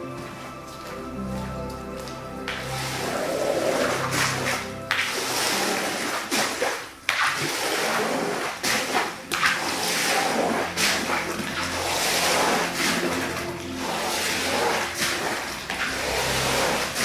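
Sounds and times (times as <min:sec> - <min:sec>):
water swished across a wet rug: 0:00.1 - 0:17.0
squeegee on a soaked rug: 0:00.2 - 0:17.0.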